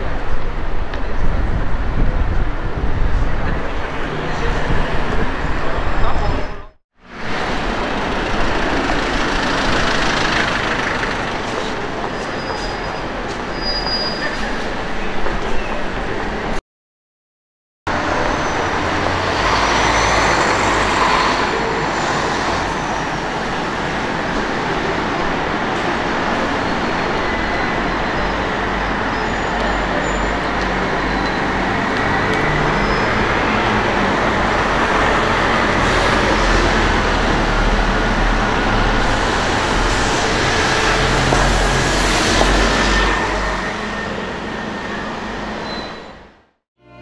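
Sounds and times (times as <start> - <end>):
bus passing close: 0.0 - 16.6, 17.9 - 47.0
city street traffic: 0.0 - 16.6, 17.9 - 47.0.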